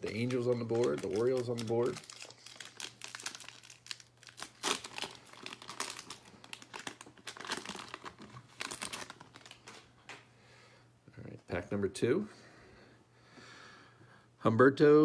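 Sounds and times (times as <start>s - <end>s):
foil wrapper crinkling and tearing: 0.0s - 9.9s.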